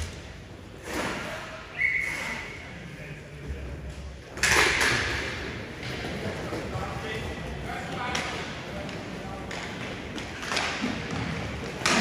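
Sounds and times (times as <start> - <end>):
skates and sticks on ice: 7.8 - 12.0.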